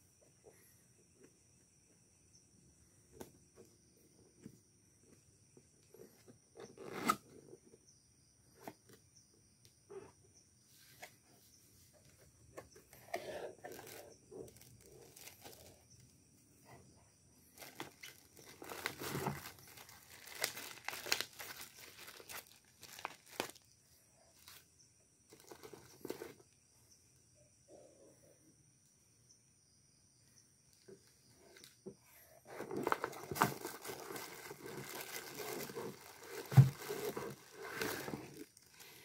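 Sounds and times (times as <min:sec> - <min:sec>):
plastic bags crinkling: 0:13.7 - 0:15.8, 0:17.6 - 0:23.7, 0:32.7 - 0:39.0.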